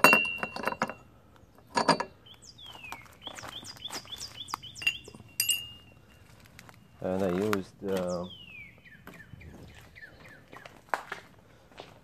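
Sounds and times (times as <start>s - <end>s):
metallic clink: 0.0s - 1.0s, 1.7s - 2.1s, 4.8s - 5.8s
bird chirping: 1.0s - 10.9s.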